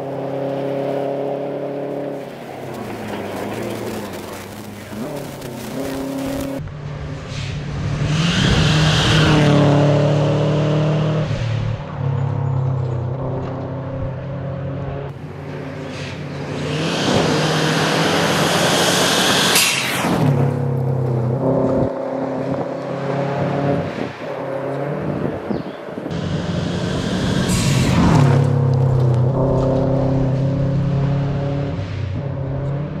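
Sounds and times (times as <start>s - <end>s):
rally car engines at full throttle: 0.0s - 33.0s
gravel hissing under tyres: 2.0s - 6.6s, 15.1s - 20.9s, 26.2s - 29.2s.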